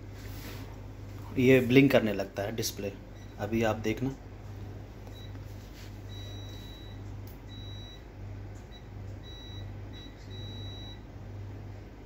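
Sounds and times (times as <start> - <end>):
low pulsing hum: 4.2 - 12.0.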